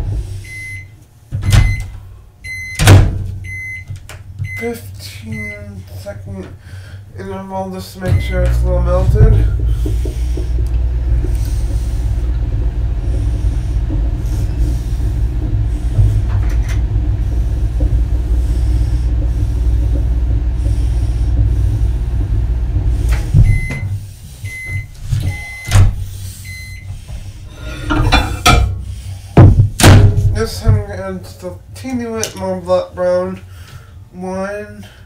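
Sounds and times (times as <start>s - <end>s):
microwave oven humming: 0.0s - 32.6s
short beeps: 24.5s - 25.7s.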